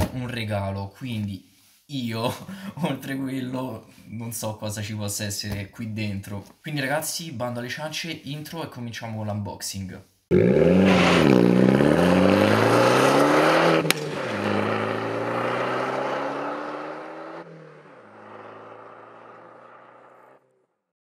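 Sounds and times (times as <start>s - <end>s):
car engine accelerating: 10.3s - 20.4s.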